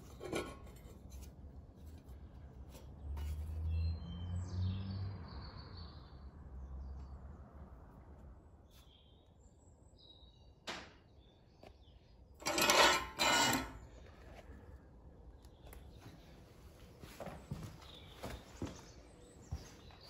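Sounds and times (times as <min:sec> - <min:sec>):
metallic clatter: 0:12.4 - 0:13.8.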